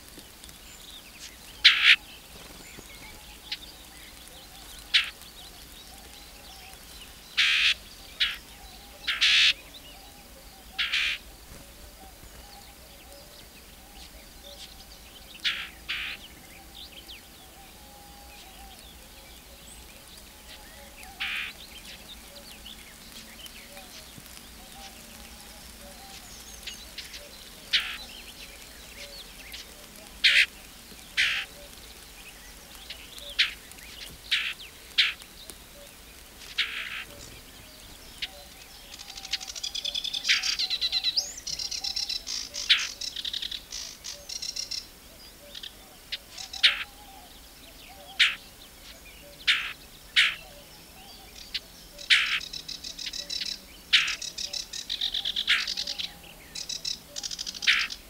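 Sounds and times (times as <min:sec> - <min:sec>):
warbler singing: 0:00.0 - 0:58.0.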